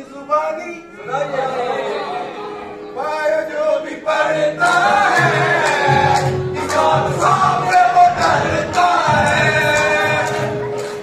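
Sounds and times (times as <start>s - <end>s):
young men singing together: 3.5s - 10.8s
sharp hand claps: 4.7s - 11.0s.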